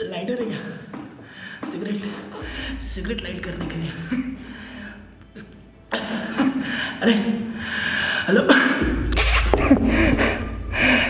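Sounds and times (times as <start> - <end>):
low rumble: 2.4 - 5.3.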